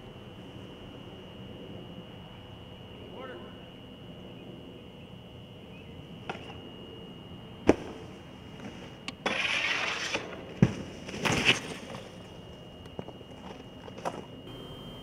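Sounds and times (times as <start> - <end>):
snowboard scraping along rail: 8.5 - 11.9.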